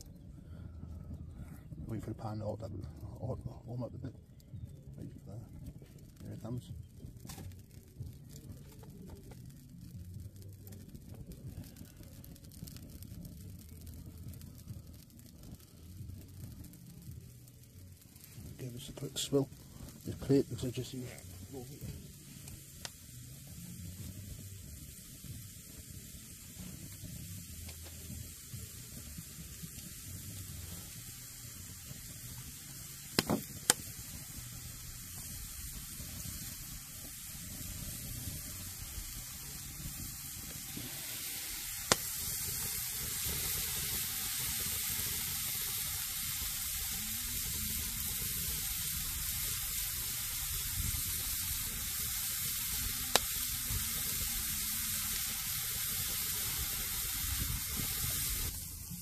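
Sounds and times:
burgers sizzling in a frying pan: 0:03.2 - 0:59.0
sharp pops: 0:07.0 - 0:09.6, 0:31.6 - 0:59.0.

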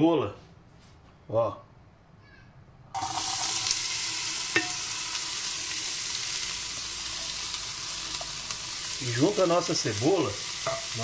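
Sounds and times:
onion sizzling in hot fat: 0:03.0 - 0:11.0.

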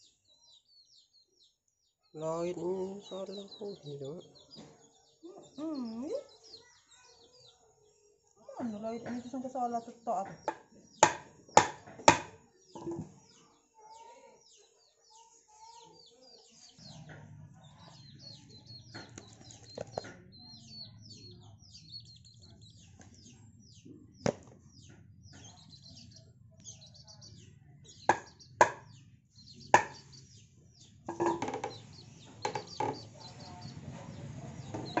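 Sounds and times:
birds chirping: 0:00.0 - 0:35.0
cleaver chopping fish on wood: 0:10.5 - 0:12.4, 0:28.1 - 0:28.9, 0:29.8 - 0:30.1.

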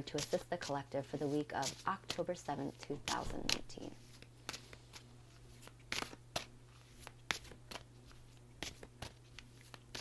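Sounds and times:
low steady hum: 0:00.0 - 0:10.0
cards clicking and rustling: 0:03.0 - 0:10.0.

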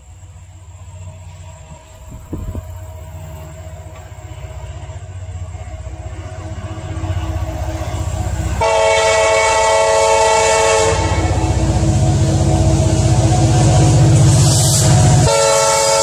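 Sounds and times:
diesel locomotive engine rumble: 0:00.0 - 0:16.0
multi-note air horn blast: 0:08.6 - 0:11.6, 0:14.7 - 0:16.0.

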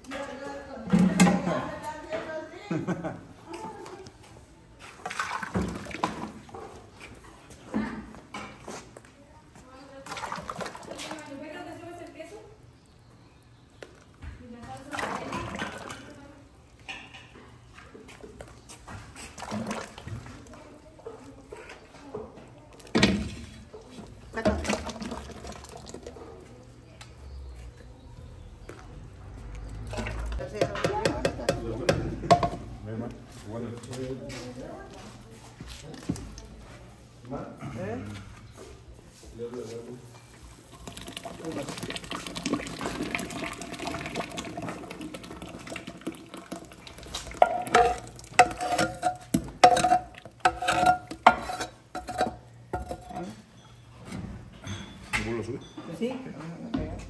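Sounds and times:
thick sauce pouring: 0:40.5 - 0:51.4.

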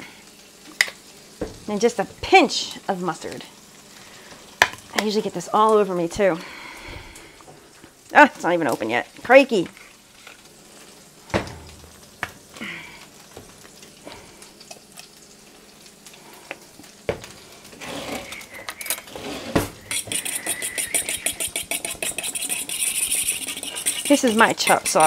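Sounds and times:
spoon scraping metal bowl: 0:17.8 - 0:25.0.

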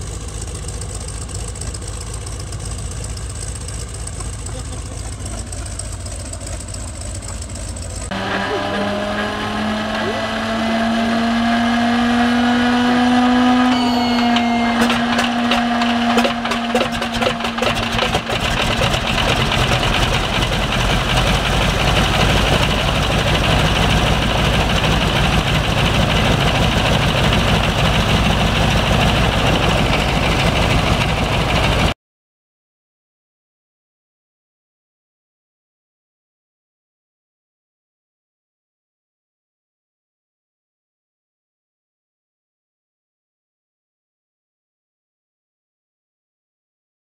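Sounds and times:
aircraft engine firing with popping: 0:00.0 - 0:08.1, 0:14.0 - 0:31.9
aircraft engine starter whine: 0:00.0 - 0:09.2, 0:13.2 - 0:31.9
propeller engine running: 0:00.0 - 0:32.0.

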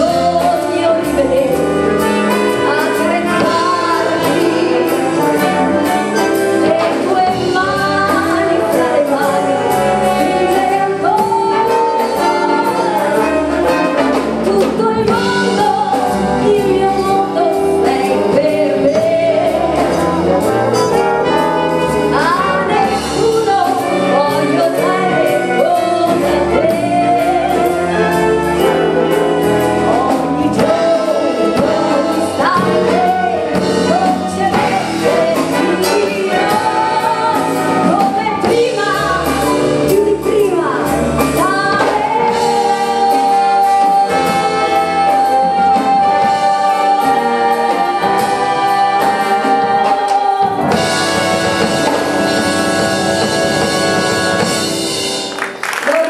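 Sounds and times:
woman singing: 0:00.0 - 0:54.8
concert band playing: 0:00.0 - 0:56.0.

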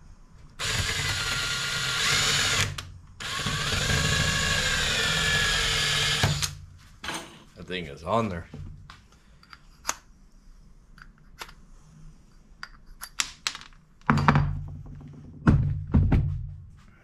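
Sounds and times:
loud knocks with low rumble: 0:14.1 - 0:16.7.

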